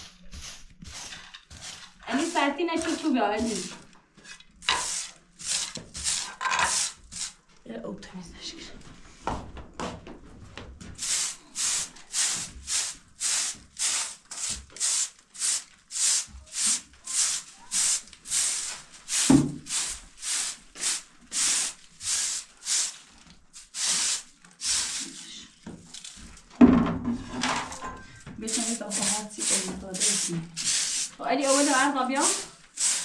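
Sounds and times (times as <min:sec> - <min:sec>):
straw broom sweeping floor: 0:00.0 - 0:07.5, 0:10.9 - 0:26.5, 0:27.2 - 0:33.0
knock: 0:26.6 - 0:27.3.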